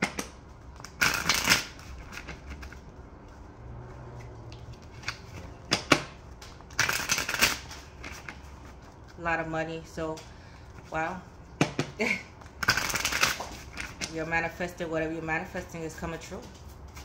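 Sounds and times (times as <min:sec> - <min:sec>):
cards being shuffled: 0:00.0 - 0:09.2, 0:11.8 - 0:14.2.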